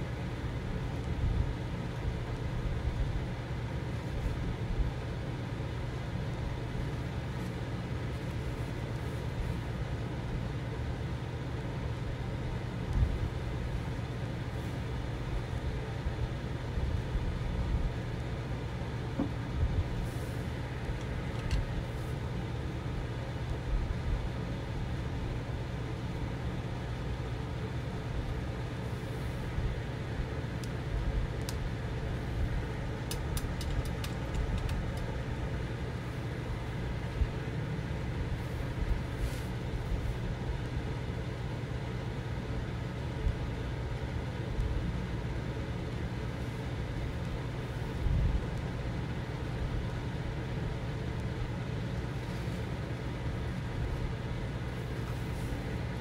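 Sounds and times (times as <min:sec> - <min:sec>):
low background rumble: 0:00.0 - 0:56.0.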